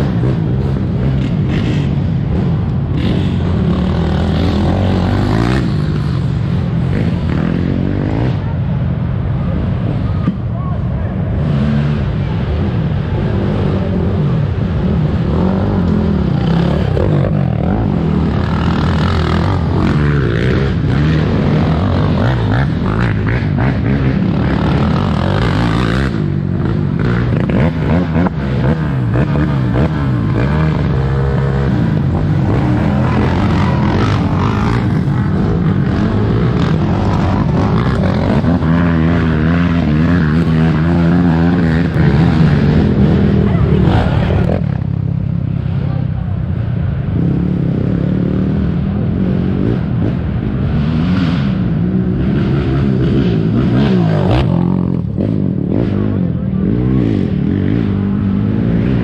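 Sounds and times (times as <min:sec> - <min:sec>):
atv engines revving: 0:00.0 - 0:59.0.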